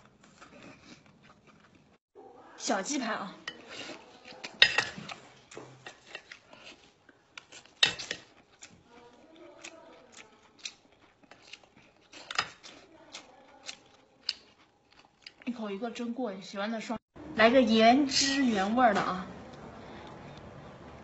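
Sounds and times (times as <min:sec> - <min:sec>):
crab shells cracking: 0:07.4 - 0:15.5.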